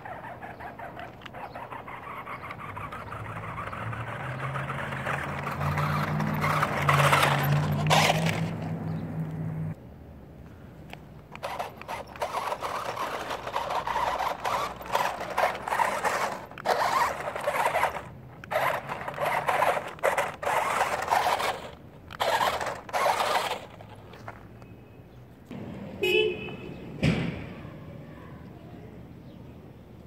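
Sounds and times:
toy truck crunching over gravel: 0:00.0 - 0:08.8, 0:11.2 - 0:24.6.

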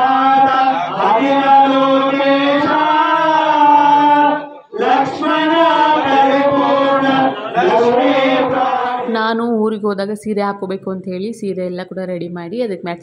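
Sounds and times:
man chanting a hymn: 0:00.0 - 0:09.1.

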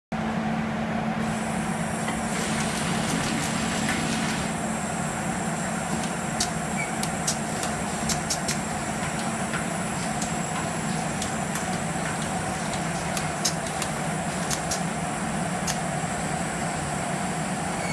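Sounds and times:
machine hum: 0:00.2 - 0:17.9
sharp clicks: 0:06.4 - 0:08.6, 0:11.1 - 0:14.9, 0:15.6 - 0:15.8.

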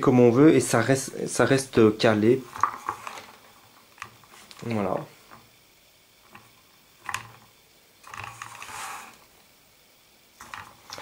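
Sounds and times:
scraping rustle: 0:08.0 - 0:09.3.

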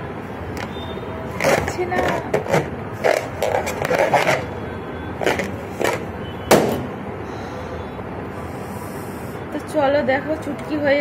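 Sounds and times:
balloon popping: 0:00.6 - 0:04.5
rubber balloon scraping: 0:01.3 - 0:04.5.

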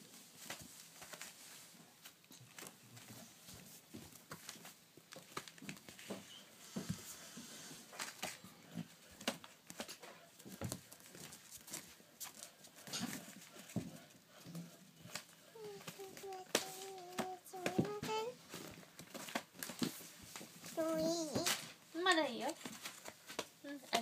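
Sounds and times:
soft taps and scratches: 0:12.9 - 0:21.5.

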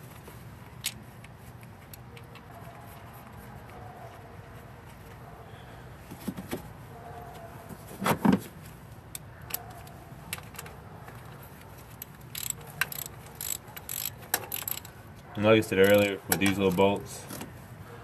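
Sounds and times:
ratchet clicking: 0:12.3 - 0:14.9
metallic clinks of tools: 0:12.4 - 0:14.9.

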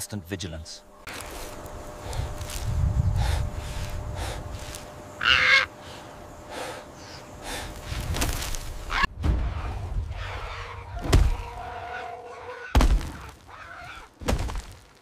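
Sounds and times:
crow cawing: 0:05.2 - 0:05.8, 0:10.2 - 0:14.2.

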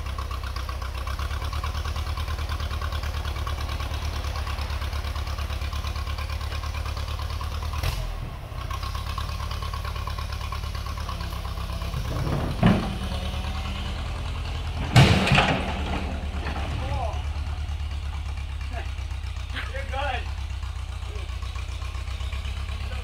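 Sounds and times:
tractor engine throbbing: 0:00.0 - 0:23.0
loud thumps: 0:11.9 - 0:13.7, 0:14.6 - 0:16.8.

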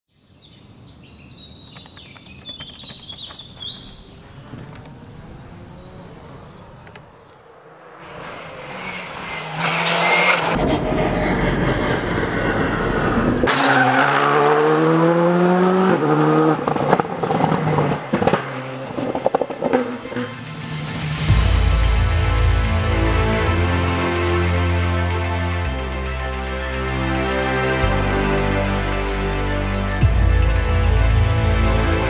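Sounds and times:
sharp cracks: 0:01.7 - 0:03.6
rally car engine accelerating: 0:04.4 - 0:24.1.

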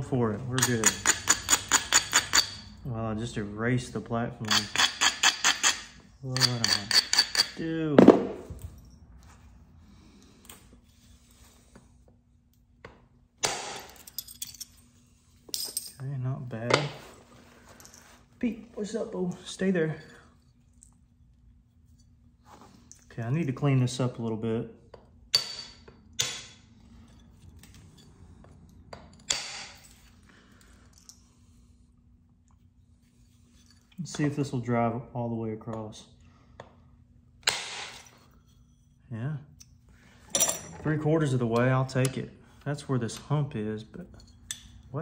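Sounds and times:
stone scraping and clinking: 0:00.6 - 0:02.8.

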